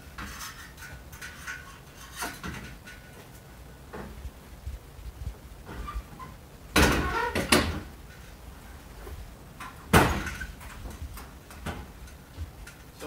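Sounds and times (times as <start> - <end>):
metal trailer door knocks and clanks: 6.7 - 7.9, 9.6 - 12.8.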